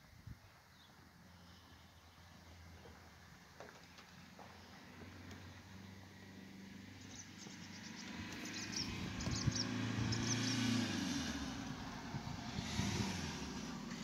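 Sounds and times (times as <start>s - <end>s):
vehicle engine passing: 4.6s - 14.0s
bird chirping: 6.9s - 10.8s.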